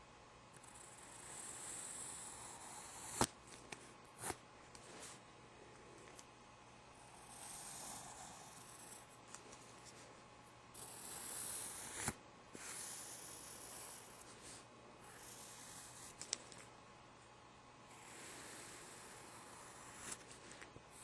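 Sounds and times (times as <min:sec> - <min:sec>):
pencil scratching on paper: 0:07.1 - 0:09.1, 0:10.8 - 0:16.3, 0:17.9 - 0:21.0.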